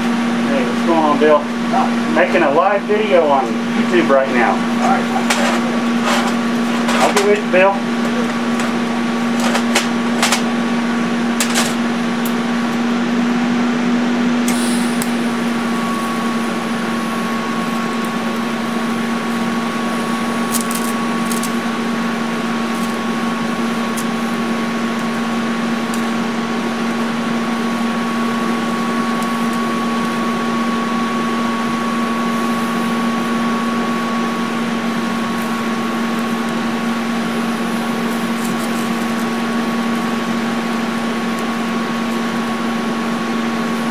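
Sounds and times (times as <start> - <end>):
welder arc buzz and hiss: 0.0 - 43.9.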